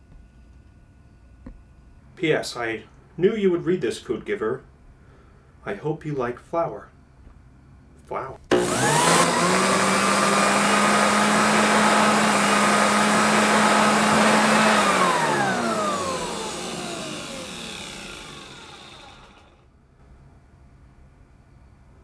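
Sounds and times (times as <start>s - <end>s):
electric blower motor whining: 8.5s - 19.6s.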